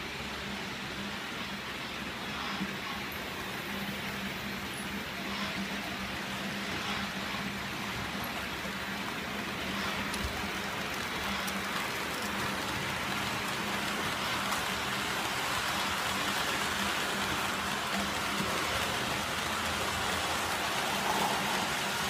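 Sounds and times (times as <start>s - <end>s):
model train wheels clattering: 6.6s - 22.0s.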